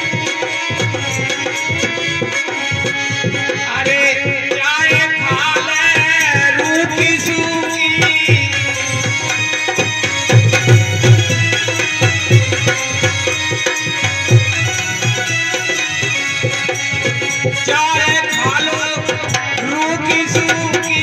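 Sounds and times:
harmonium and keyboard chords: 0.0s - 21.0s
ornamented vocal melody: 1.3s - 21.0s
hand drum beating: 6.9s - 21.0s.

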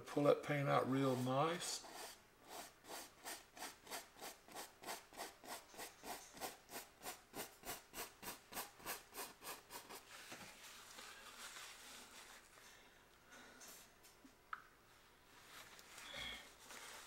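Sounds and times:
paintbrush rubbing on canvas: 0.9s - 12.6s.

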